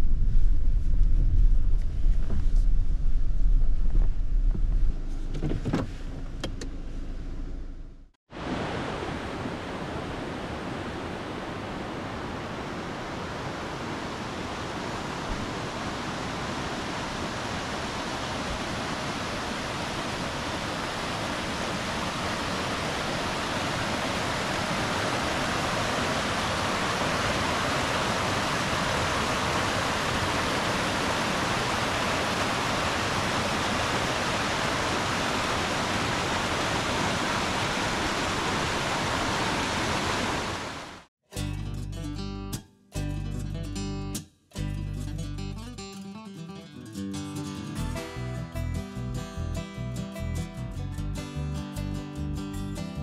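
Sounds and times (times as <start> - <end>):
low rumble: 0.0 - 8.1
mountain stream rushing: 8.3 - 41.1.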